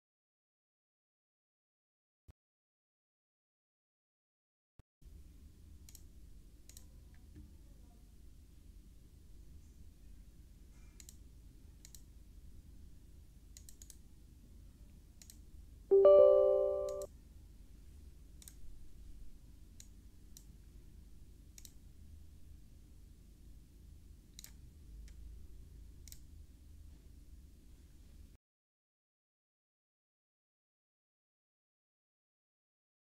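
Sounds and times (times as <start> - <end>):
computer mouse clicks: 5.8 - 6.1, 6.7 - 6.9, 11.0 - 11.2, 11.8 - 12.1, 13.6 - 14.0, 15.2 - 15.4, 18.4 - 18.6, 21.6 - 21.8, 24.4 - 25.2, 26.0 - 26.3
electronic notification chime: 15.9 - 17.1.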